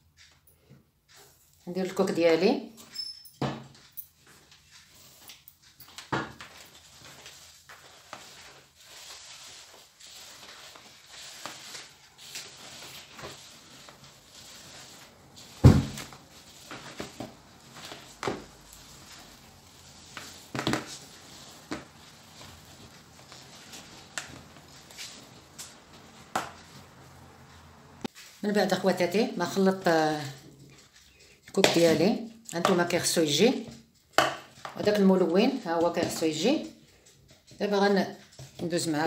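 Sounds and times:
light rustling: 3.6s - 28.4s.

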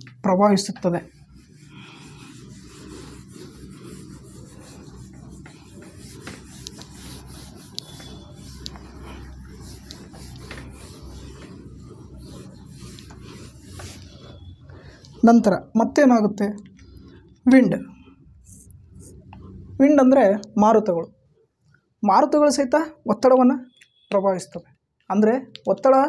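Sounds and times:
cloth rubbing on whiteboard: 0.0s - 19.7s.

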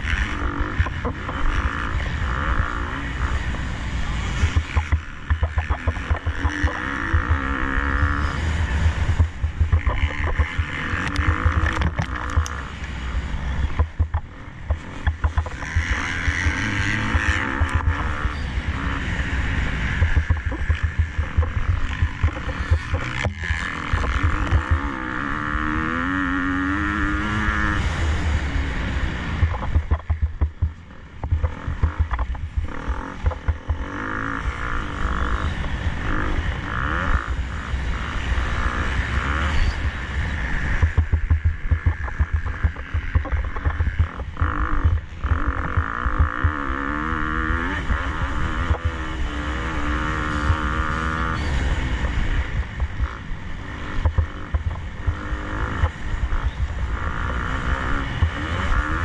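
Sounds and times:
motocross bike engine revving: 0.0s - 59.0s
heavy low rumble: 13.7s - 25.9s, 28.3s - 35.4s, 39.8s - 46.7s.

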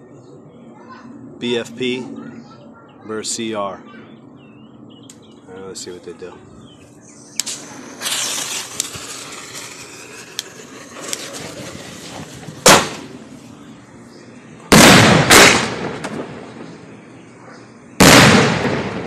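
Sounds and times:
firework mortar launch bang: 7.4s - 13.2s, 14.7s - 16.7s, 18.0s - 19.0s
firework salute bangs: 7.4s - 13.2s, 14.7s - 16.7s, 18.0s - 19.0s.

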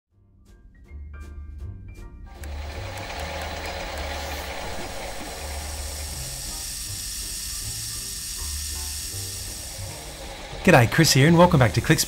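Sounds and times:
low stepping machine note: 2.3s - 12.0s
lathe cutting tool hiss: 2.4s - 12.0s.

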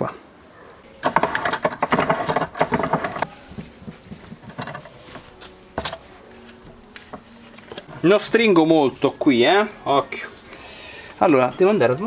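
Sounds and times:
metallic clicking and rattling: 1.0s - 3.3s, 3.9s - 5.0s
light handling noises: 1.0s - 8.7s.

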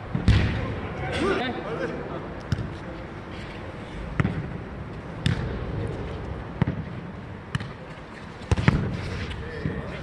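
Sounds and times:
ball thudding on court: 2.5s - 2.7s, 4.2s - 4.5s, 5.2s - 5.6s, 6.6s - 6.9s, 8.5s - 9.0s.

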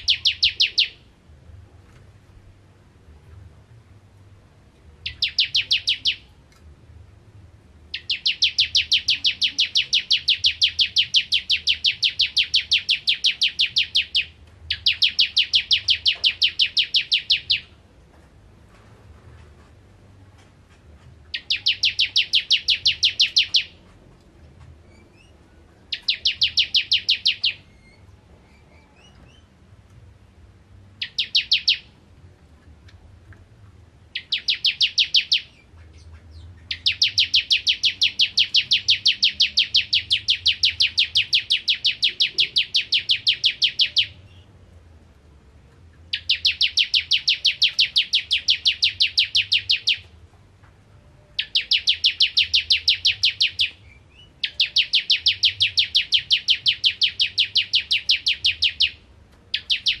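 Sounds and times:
bird singing rapid high notes: 0.0s - 1.1s, 5.0s - 6.4s, 7.9s - 17.8s, 21.3s - 23.8s, 24.9s - 29.5s, 31.0s - 32.0s, 34.1s - 44.5s, 46.1s - 50.1s, 51.2s - 60.0s.

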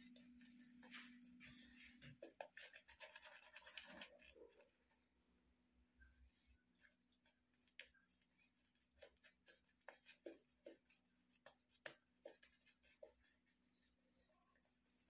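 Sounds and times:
shaving brush strokes on face: 6.8s - 15.0s.

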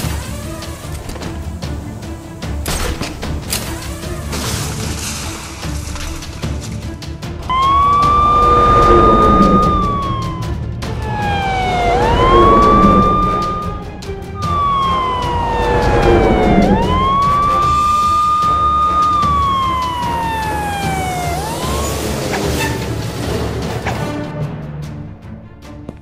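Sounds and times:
background music: 0.0s - 26.0s
police siren wailing: 7.4s - 23.3s.

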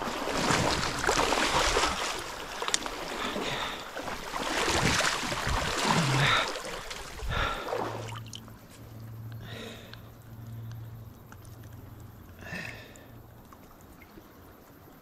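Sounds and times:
river water rushing: 0.0s - 10.4s
steady low hum: 0.0s - 15.0s.

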